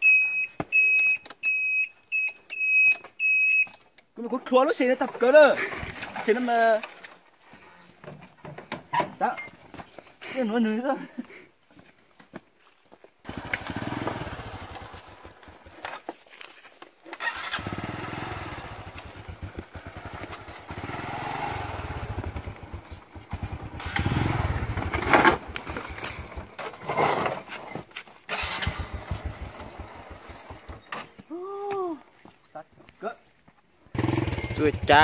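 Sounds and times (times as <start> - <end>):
motorcycle engine revving: 13.2 - 15.8, 17.2 - 27.5, 28.3 - 30.9, 33.9 - 35.0.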